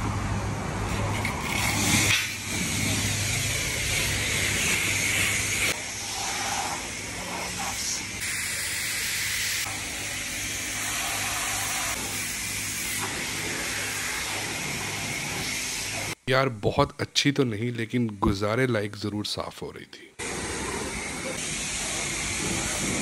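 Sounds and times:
pressure washer spraying car: 0:00.9 - 0:16.2, 0:20.2 - 0:23.0.

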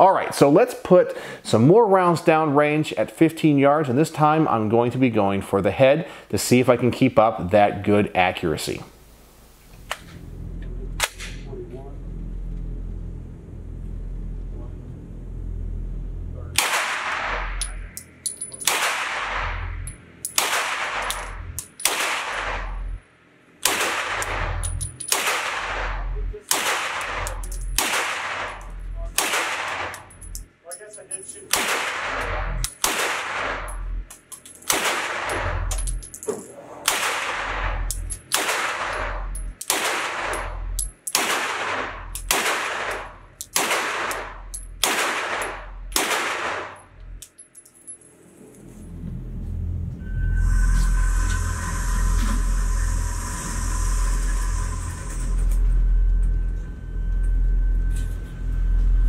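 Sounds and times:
rifle shots indoors: 0:11.0 - 0:11.4, 0:16.6 - 0:17.9, 0:18.6 - 0:22.9, 0:23.6 - 0:30.1, 0:31.5 - 0:33.8, 0:34.6 - 0:35.6, 0:36.8 - 0:46.8.

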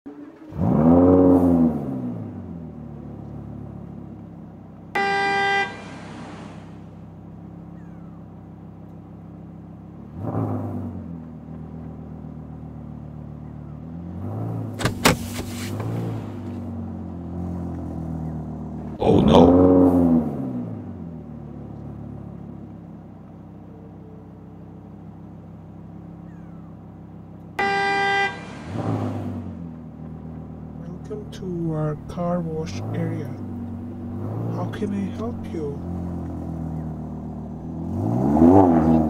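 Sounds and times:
car engine revving: 0:00.0 - 0:39.0
engine idling: 0:02.5 - 0:10.1, 0:20.9 - 0:28.8, 0:29.5 - 0:37.9
car horn honk: 0:04.9 - 0:06.8, 0:27.6 - 0:29.4.

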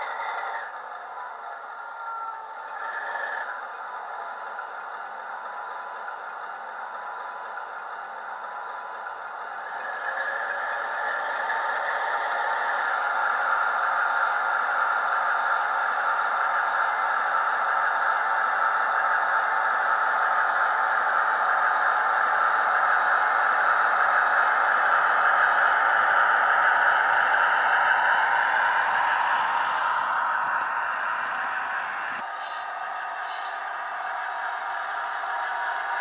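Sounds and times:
simulated diesel engine through small speaker: 0:00.0 - 0:36.0.

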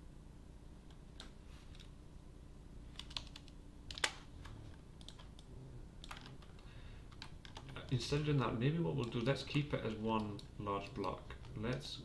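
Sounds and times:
mouse and keyboard clicks: 0:03.0 - 0:08.1, 0:09.0 - 0:11.9.

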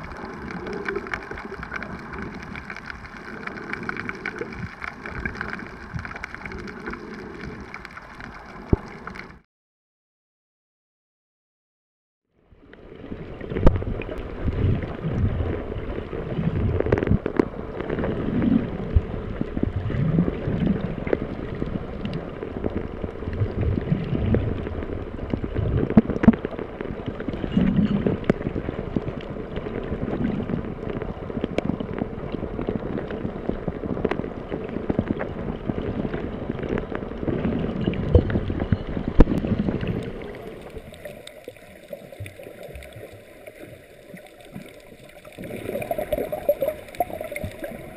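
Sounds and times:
muffled underwater rumbling: 0:00.0 - 0:09.4, 0:12.4 - 0:47.9
sharp underwater clicks: 0:00.0 - 0:09.4.

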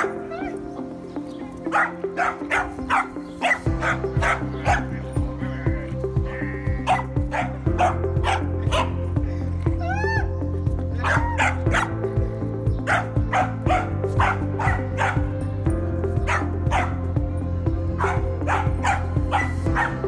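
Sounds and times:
dog barking and yipping: 0:00.0 - 0:01.0, 0:01.6 - 0:05.1, 0:06.8 - 0:09.1, 0:10.9 - 0:12.0, 0:12.8 - 0:15.4, 0:16.2 - 0:17.0, 0:17.9 - 0:20.0
background music: 0:00.0 - 0:20.0.

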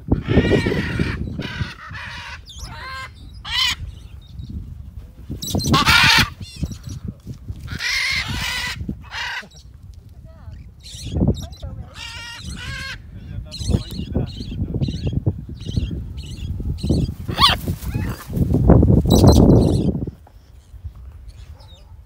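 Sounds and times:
macaws squawking: 0:00.1 - 0:03.9, 0:05.4 - 0:06.9, 0:07.6 - 0:09.7, 0:10.8 - 0:18.4.

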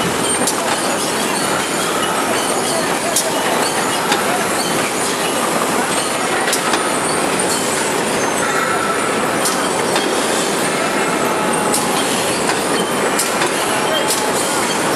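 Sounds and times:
veneer jointer mechanical clatter: 0:11.6 - 0:14.9.

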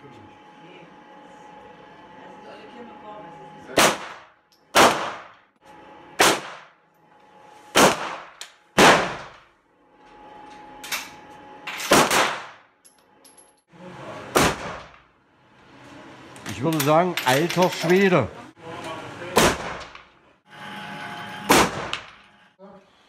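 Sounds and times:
handgun shots: 0:03.8 - 0:05.3, 0:06.2 - 0:06.7, 0:07.8 - 0:09.4, 0:11.9 - 0:12.6.

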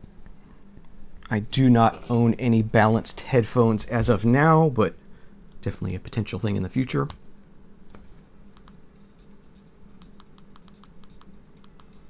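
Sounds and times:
low steady hum: 0:00.0 - 0:12.0
fingertips tapping touchscreen: 0:09.5 - 0:12.0.

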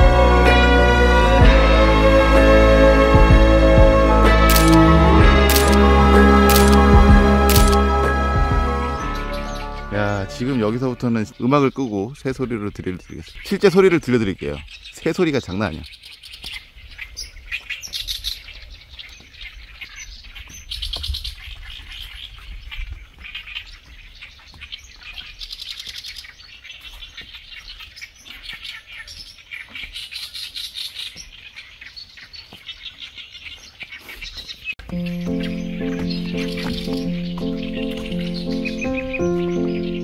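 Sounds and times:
background music: 0:00.0 - 0:11.5, 0:34.8 - 0:40.0
songbirds singing and chirping: 0:06.5 - 0:40.0.

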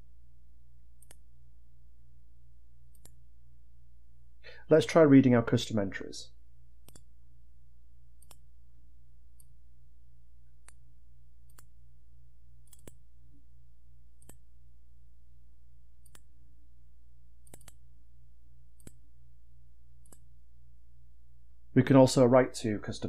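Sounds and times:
low electrical hum: 0:00.0 - 0:23.0
computer mouse clicks: 0:01.0 - 0:01.2, 0:02.9 - 0:03.2, 0:06.8 - 0:07.1, 0:08.2 - 0:08.4, 0:10.6 - 0:10.8, 0:11.4 - 0:11.7, 0:12.6 - 0:13.0, 0:14.2 - 0:14.5, 0:16.0 - 0:16.3, 0:17.4 - 0:17.8, 0:18.8 - 0:19.0, 0:20.0 - 0:20.3.

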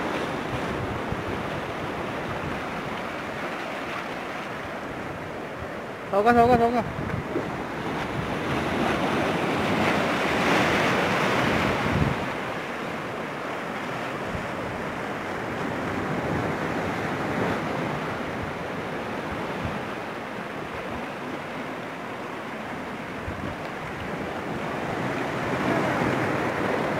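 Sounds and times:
wind buffeting microphone: 0:05.0 - 0:12.5
surf breaking on rocks: 0:06.8 - 0:13.1, 0:23.5 - 0:26.9.

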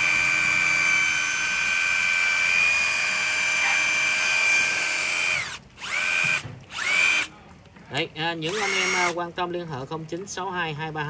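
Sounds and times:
impact driver motor whining: 0:00.0 - 0:07.3, 0:08.4 - 0:09.2.

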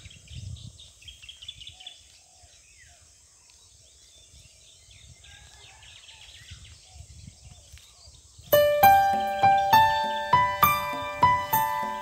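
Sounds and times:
birds chirping: 0:06.1 - 0:12.0.

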